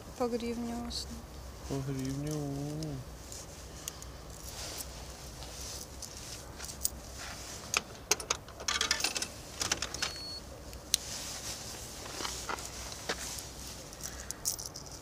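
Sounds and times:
coins clicking into a coin slot: 8.1 - 10.2
coins clinking in a hand: 13.9 - 15.0.

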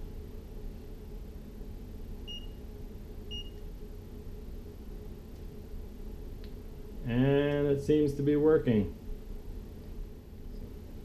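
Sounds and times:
low steady hum: 0.0 - 11.0
multimeter beeps: 2.2 - 2.6, 3.3 - 3.7.

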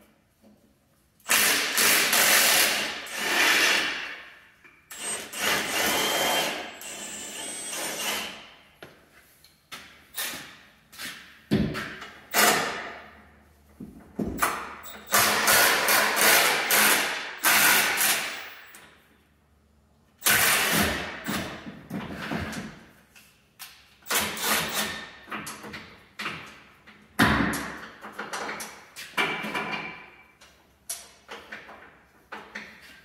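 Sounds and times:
impact wrench bursts: 1.2 - 4.2, 4.9 - 8.5, 12.3 - 13.0, 14.4 - 18.8, 20.2 - 21.6, 24.0 - 25.2.

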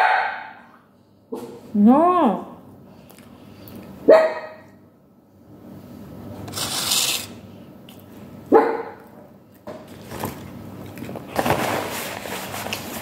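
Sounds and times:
dog barking: 0.0 - 0.6, 4.1 - 4.7, 8.5 - 9.0
paper towel rustling: 11.1 - 13.0.

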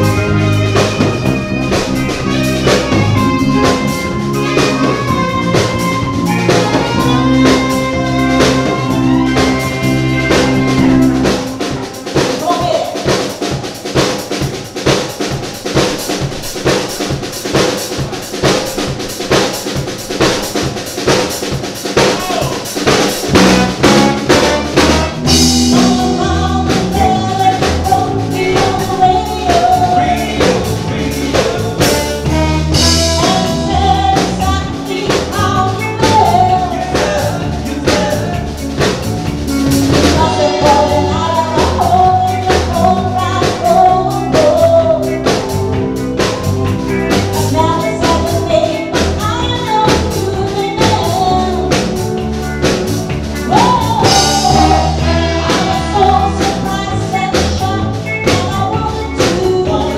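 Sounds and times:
drum kit: 0.0 - 59.9
live band playing: 0.0 - 59.9
woman singing: 25.3 - 38.6, 39.9 - 45.6, 47.2 - 52.0, 53.5 - 59.9.

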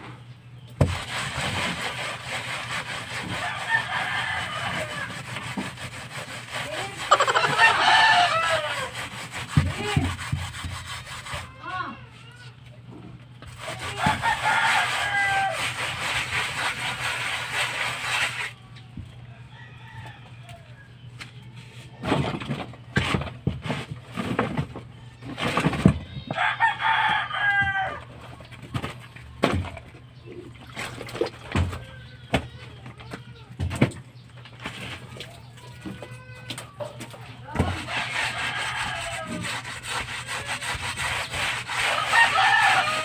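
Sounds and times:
hand tool scraping concrete wall: 0.8 - 11.6, 13.4 - 18.6, 37.5 - 43.0
rooster crowing: 3.4 - 5.3, 7.1 - 9.0, 13.9 - 15.7, 19.3 - 20.9, 26.3 - 28.1, 37.8 - 39.6, 41.8 - 43.0.

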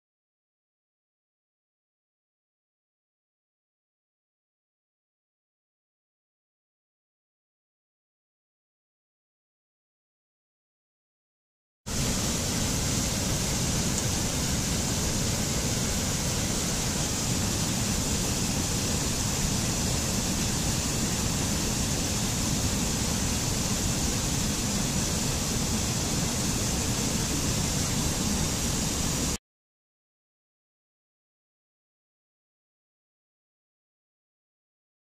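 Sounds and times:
stream rushing over rocks: 11.9 - 29.4.

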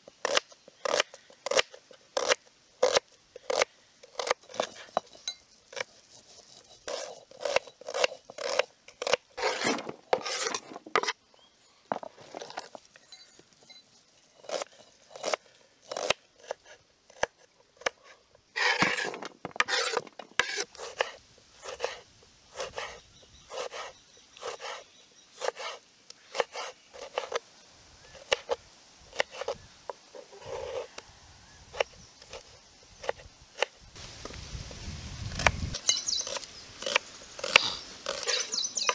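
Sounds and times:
grinding stone rubbing on stone: 4.2 - 11.2, 18.6 - 22.0.

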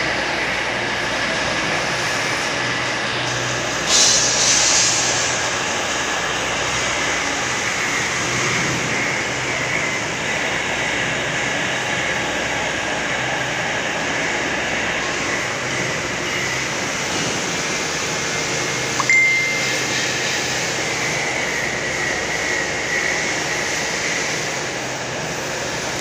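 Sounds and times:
machinery hum and hiss: 0.0 - 26.0
brief high-pitched tone: 19.0 - 20.2.

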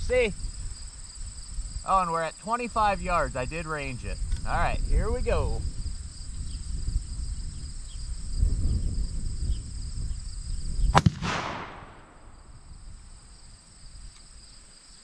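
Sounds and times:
rifle shot with echo: 11.0 - 12.5.

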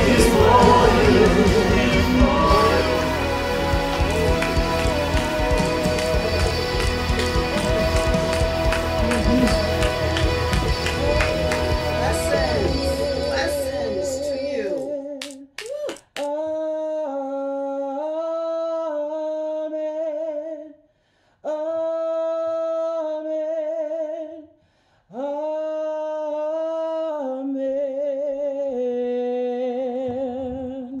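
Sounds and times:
person singing unaccompanied: 0.0 - 15.5.

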